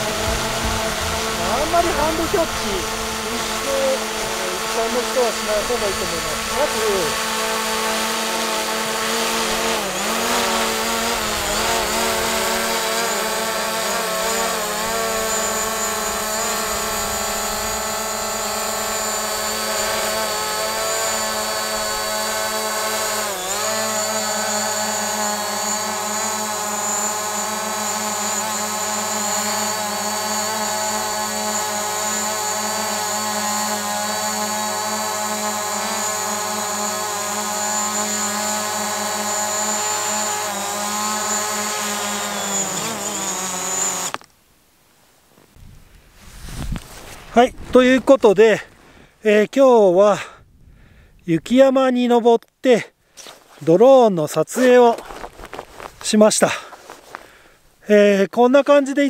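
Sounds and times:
drone propellers whining: 0.0s - 44.2s.

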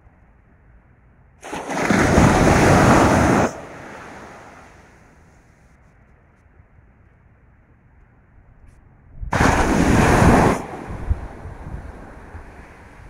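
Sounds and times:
wind: 0.0s - 13.0s
waves washing onto beach: 1.4s - 5.2s, 9.3s - 13.0s.

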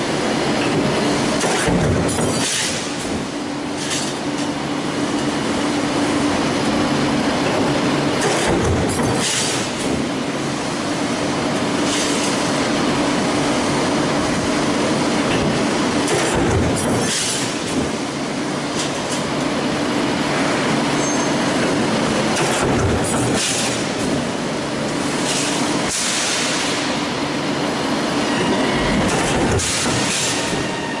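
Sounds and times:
stamping press mechanical din: 0.6s - 4.2s, 7.5s - 10.1s, 15.3s - 18.0s, 22.3s - 24.3s, 28.9s - 30.7s.

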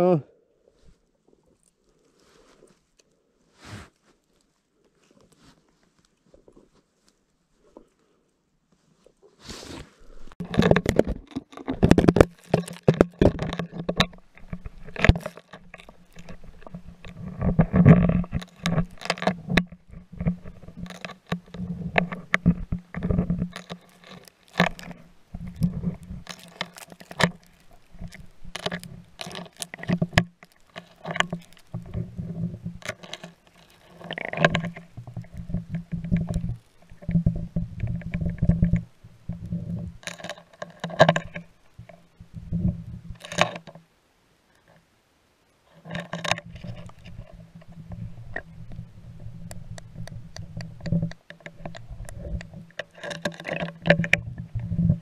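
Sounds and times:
muffled underwater clicks and knocks: 10.1s - 43.9s, 45.7s - 55.0s.

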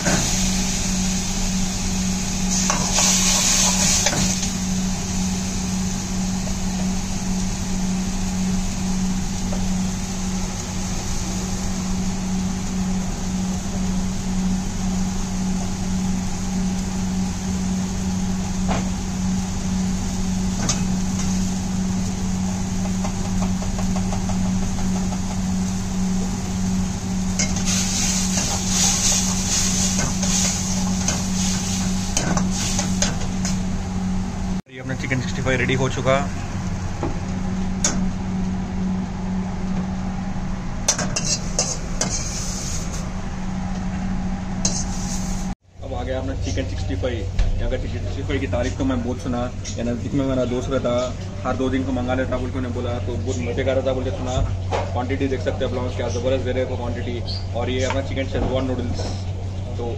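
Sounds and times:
hot oil sizzling in a wok: 0.0s - 33.8s
low mechanical hum: 0.0s - 59.9s.

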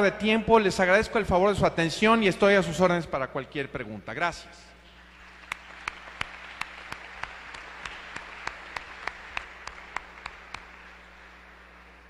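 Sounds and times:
audience applauding: 5.0s - 12.0s
person clapping steadily: 5.1s - 12.0s.

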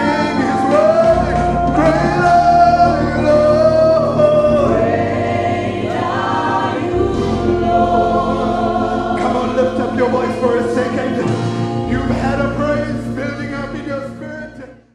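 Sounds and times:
group singing in harmony: 0.0s - 13.3s
low musical accompaniment: 0.0s - 14.9s.

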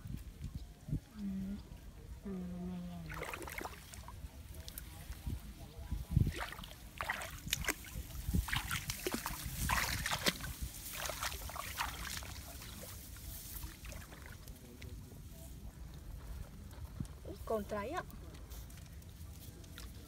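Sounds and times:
muddy water splashing and sloshing: 2.9s - 15.4s.

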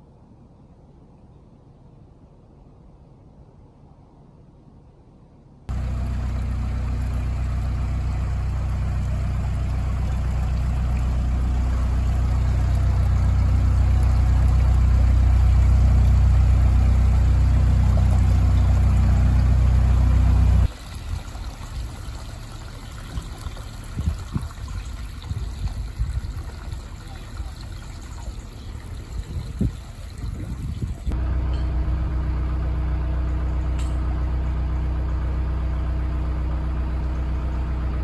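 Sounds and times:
trickling water: 5.7s - 31.7s
diesel boat engine running: 5.7s - 38.0s.

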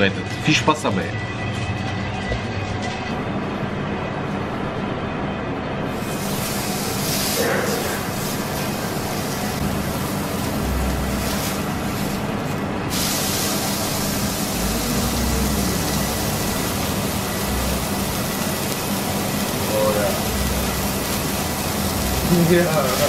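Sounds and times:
patty sizzling on griddle: 5.9s - 23.0s
low steady hum: 13.6s - 22.8s.

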